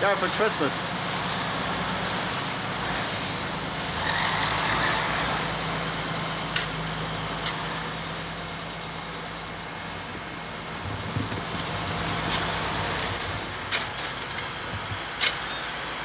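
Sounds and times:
vehicle engine running: 0.0s - 16.0s.

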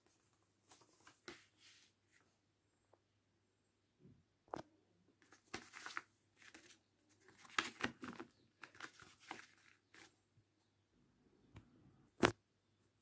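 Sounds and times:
paper rustling and crinkling: 0.0s - 2.2s, 5.2s - 10.2s.

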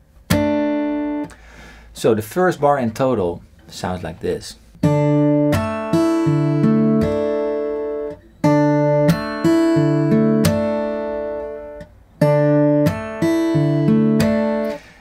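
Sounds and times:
fingerpicked acoustic guitar: 0.2s - 1.4s, 4.8s - 15.0s.

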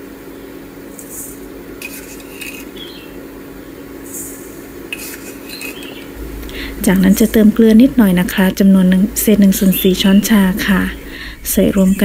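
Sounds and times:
steady low hum: 0.0s - 12.0s
sugar pouring hiss: 0.9s - 2.9s, 4.0s - 8.1s.

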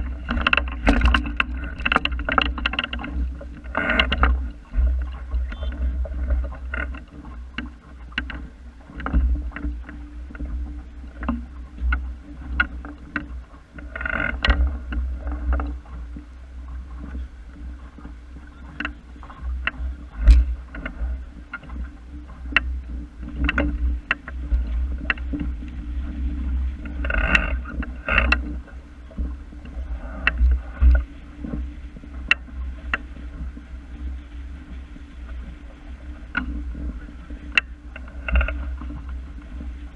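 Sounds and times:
water splashing against boat hull: 0.0s - 39.9s
wind rumble on microphone: 0.0s - 39.9s
sharp knocks and ticks: 0.1s - 10.6s, 11.2s - 15.8s, 18.7s - 25.8s, 26.8s - 31.6s.

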